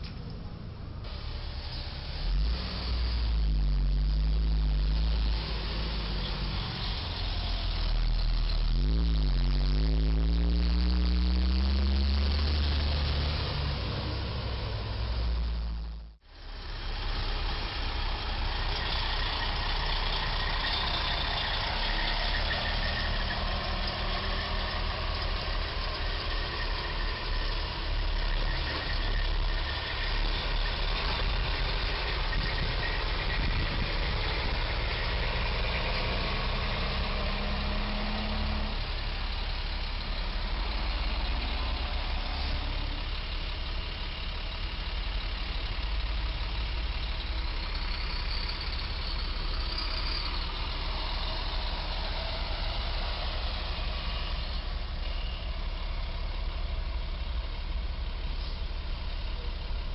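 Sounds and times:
traffic: 0.0 - 59.9
truck diesel engine idling: 12.6 - 59.9.

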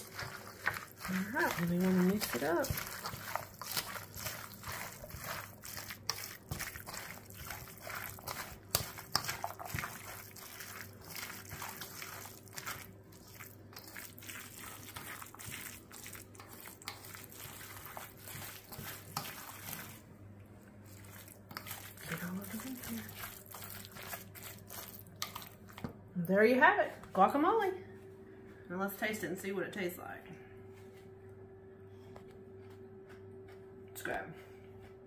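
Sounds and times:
fork mashing wet food: 0.0 - 26.0.

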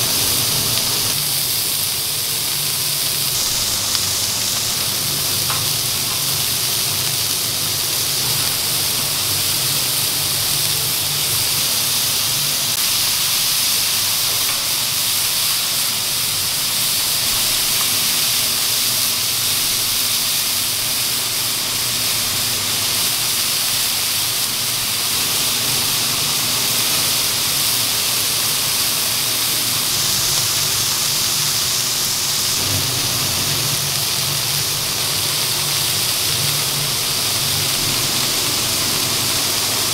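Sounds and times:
burger patties sizzling on griddle: 0.0 - 39.9
low hum: 24.8 - 39.9.

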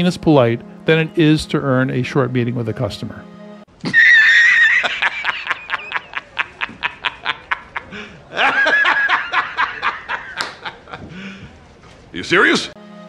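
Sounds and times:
man laughing uproariously: 3.8 - 11.2.

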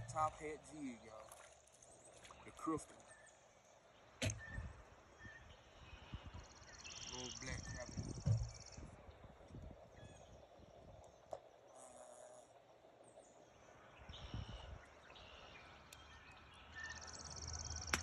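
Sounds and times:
bird calls: 0.0 - 9.0, 9.8 - 18.0.

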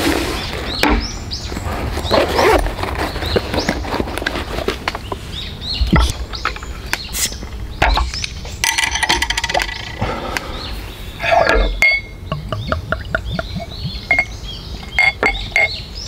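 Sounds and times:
small birds chirping: 0.2 - 16.0
glass bottle knocking on wooden table: 11.8 - 14.3.

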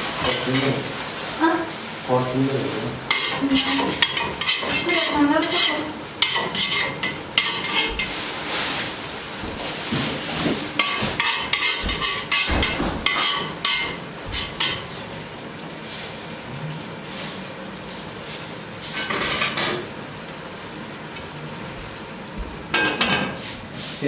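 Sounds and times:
carrots frying in oil: 0.0 - 24.0
metal skimmer scraping a pot: 3.1 - 8.2, 10.2 - 14.9.

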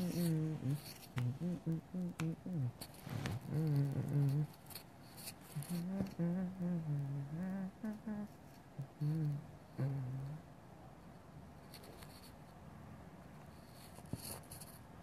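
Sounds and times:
man humming: 0.0 - 4.6, 5.6 - 10.4.

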